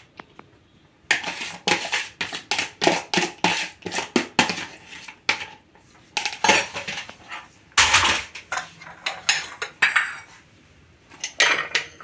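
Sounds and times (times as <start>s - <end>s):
dishes clattering on stone: 7.8s - 10.4s, 11.2s - 12.0s.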